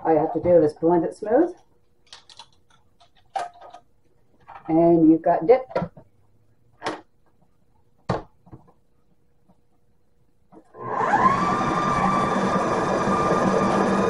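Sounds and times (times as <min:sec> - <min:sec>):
food processor motor whining: 0:10.7 - 0:14.0.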